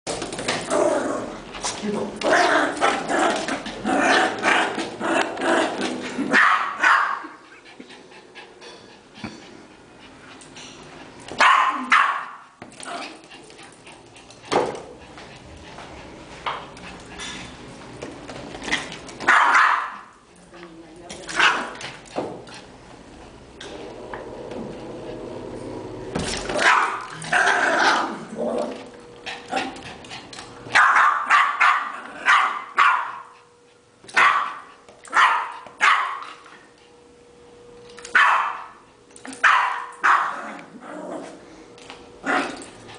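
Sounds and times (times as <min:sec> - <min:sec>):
small dog barking: 0:06.3 - 0:07.3, 0:11.4 - 0:12.4, 0:19.3 - 0:20.1, 0:26.6 - 0:27.1, 0:30.7 - 0:33.3, 0:34.1 - 0:36.2, 0:38.1 - 0:38.8, 0:39.4 - 0:40.4.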